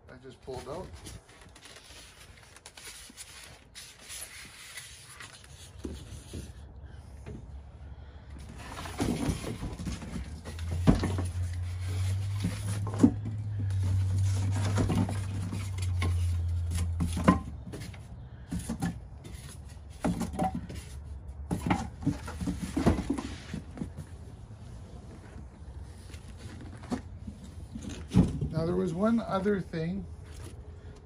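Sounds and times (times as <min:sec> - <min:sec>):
cardboard flaps rustling: 0:08.4 - 0:28.6
box knocking and bumping: 0:08.5 - 0:13.7, 0:14.4 - 0:24.1.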